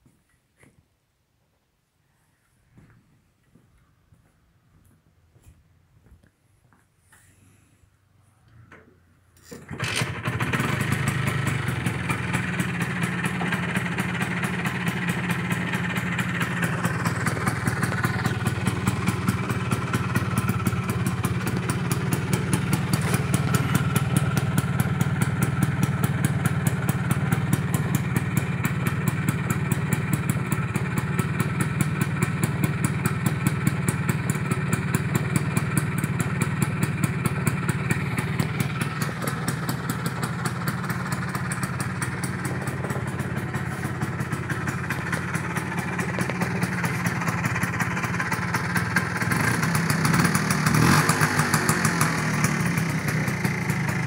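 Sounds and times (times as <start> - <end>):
scooter engine starting and idling: 8.5 - 54.0.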